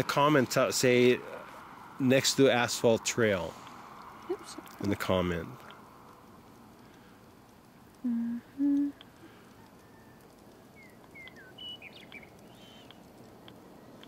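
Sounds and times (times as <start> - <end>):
person humming: 8.0 - 9.0
small bird chirping: 9.7 - 13.1.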